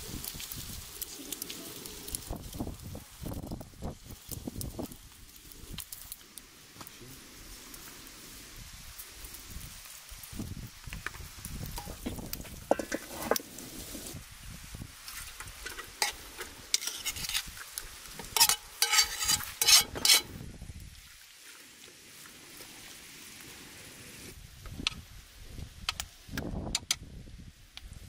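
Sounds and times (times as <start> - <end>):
faint sizzle: 0.0 - 26.3
spoon stirring rice in pan: 12.6 - 14.1, 15.0 - 20.3
metal tray scraping a pan: 12.7 - 14.0, 15.1 - 17.6, 18.2 - 20.4.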